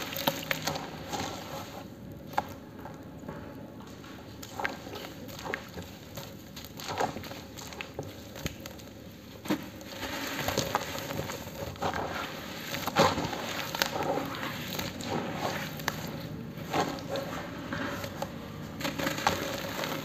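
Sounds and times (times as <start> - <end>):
wet squelching: 0.0 - 3.1, 3.9 - 20.0
hands kneading wet cement: 0.0 - 20.0
gritty crunching: 4.3 - 20.0.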